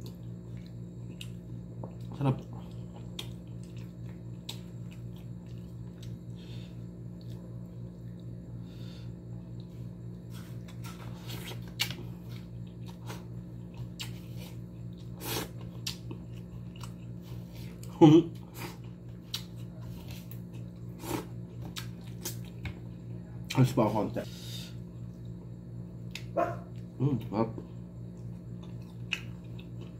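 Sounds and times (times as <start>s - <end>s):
chewing sounds: 0.0s - 6.4s, 11.3s - 22.6s, 27.6s - 29.9s
steady low hum: 0.0s - 29.9s.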